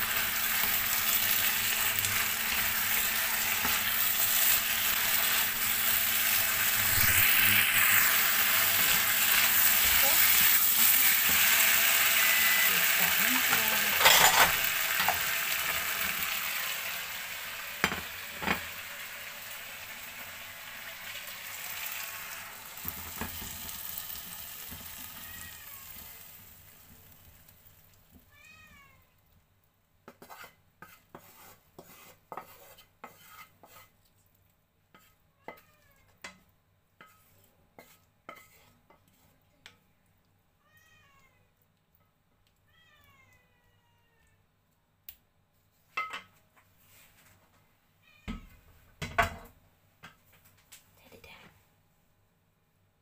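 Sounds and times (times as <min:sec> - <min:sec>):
food sizzling in a frying pan: 0:00.0 - 0:28.3, 0:37.0 - 0:39.3
spatula scraping a pan: 0:00.1 - 0:16.2, 0:30.0 - 0:34.0, 0:34.9 - 0:36.4, 0:37.0 - 0:39.4.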